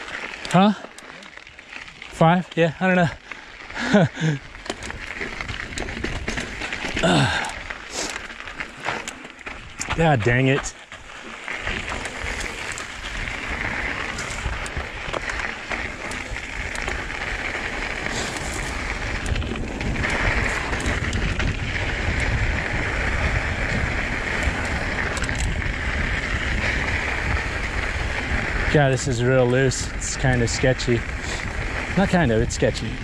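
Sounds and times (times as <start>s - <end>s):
bike tyres rolling over dirt: 0.0s - 33.0s
bike rattling knocks: 4.7s - 7.5s
wind over microphone: 15.9s - 33.0s.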